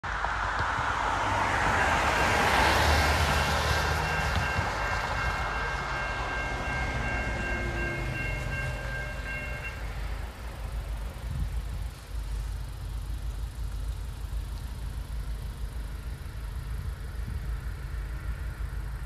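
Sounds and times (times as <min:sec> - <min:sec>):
road traffic rushing past: 0:00.0 - 0:19.0
railroad crossing bell ringing: 0:01.4 - 0:12.2.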